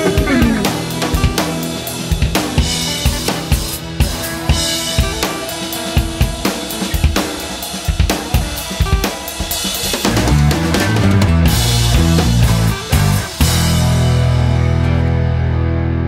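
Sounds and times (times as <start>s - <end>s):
heavy bass line: 0.0s - 7.1s, 9.9s - 16.0s
rock drum beat: 0.0s - 15.5s.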